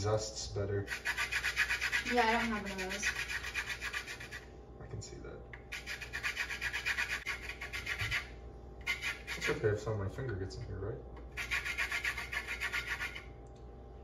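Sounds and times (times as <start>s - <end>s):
rhythmic rasping strokes: 0.8s - 4.5s, 5.6s - 9.9s, 11.3s - 13.3s.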